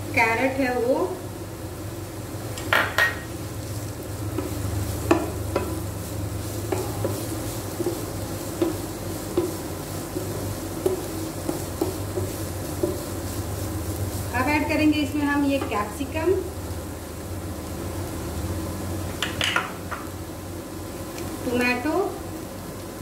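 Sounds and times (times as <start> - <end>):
light sizzle of butter: 0.0 - 23.0
spatula scraping pan: 4.4 - 14.3.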